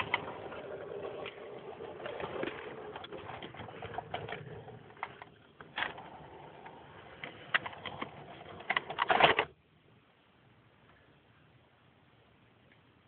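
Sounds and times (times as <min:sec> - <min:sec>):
model train derailing clatter: 0:00.0 - 0:09.5
model train wheels clicking: 0:00.0 - 0:09.5.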